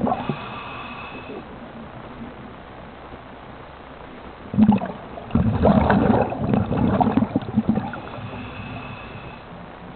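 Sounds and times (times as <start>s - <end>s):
diver exhaling bubbles underwater: 4.5s - 8.9s.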